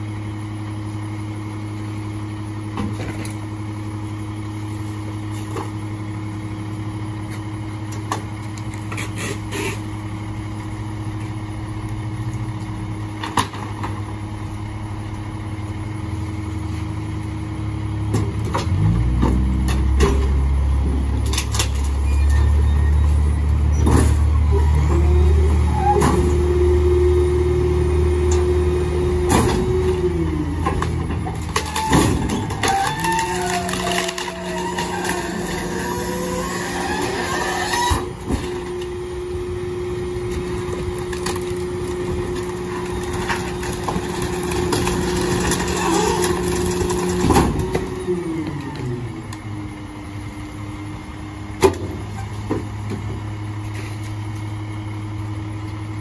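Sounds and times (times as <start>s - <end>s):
garbage truck idling: 0.0s - 56.0s
hydraulic whine: 20.2s - 41.0s
waste thrown into hopper: 30.6s - 38.7s
wood cracking: 30.8s - 36.2s.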